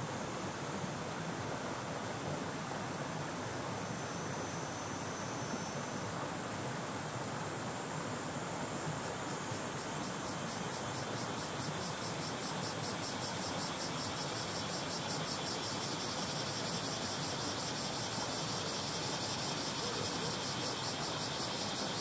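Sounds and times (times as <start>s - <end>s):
cicadas singing: 7.7s - 22.0s.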